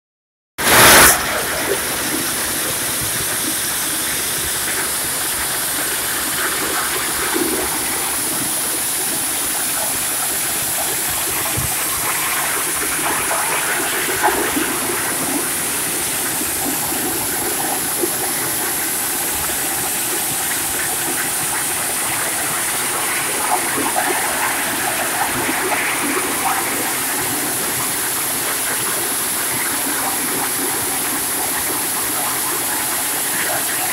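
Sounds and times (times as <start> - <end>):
short loud burst: 0.6 - 4.2
thresher rushing hissing noise: 0.6 - 33.9.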